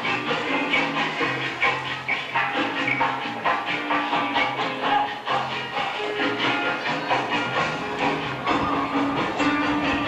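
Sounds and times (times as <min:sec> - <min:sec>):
music with beat and bass line: 0:00.0 - 0:10.0.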